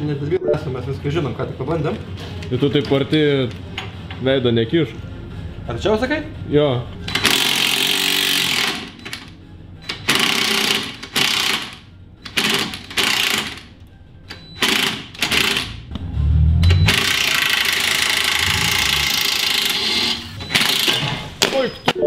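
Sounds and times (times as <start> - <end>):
angle grinder cutting metal: 16.9 - 20.4.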